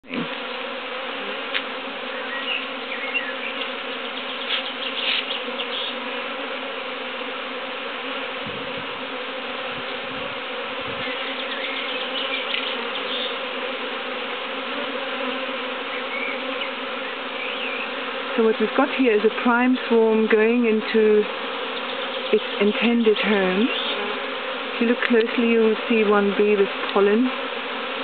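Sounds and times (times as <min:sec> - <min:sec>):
bee swarm buzzing: 0:00.0 - 0:28.0.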